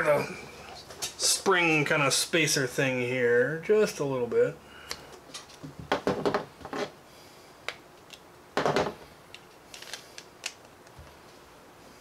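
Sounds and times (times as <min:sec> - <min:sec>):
plastic parts clicking: 0:09.3 - 0:11.0.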